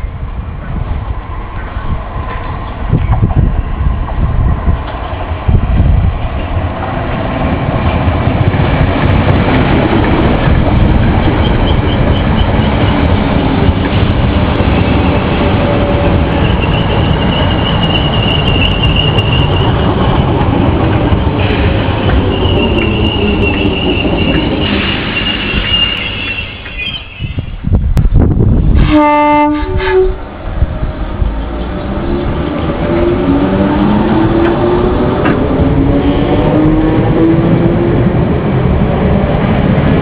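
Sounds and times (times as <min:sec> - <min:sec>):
train wheels rumbling on rail: 0:00.0 - 0:40.0
high squeal: 0:16.1 - 0:20.4, 0:21.1 - 0:27.7.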